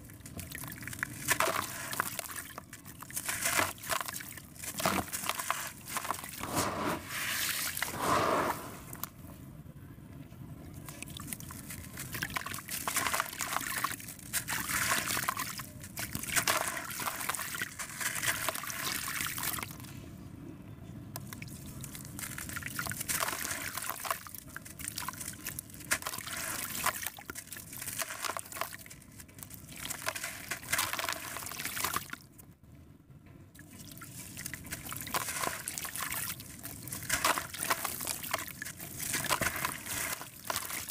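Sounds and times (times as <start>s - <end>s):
grains pattering into water: 0.4s - 6.4s, 11.0s - 19.7s, 21.3s - 32.2s, 33.7s - 40.9s
concrete crunching by hand: 36.6s - 40.9s.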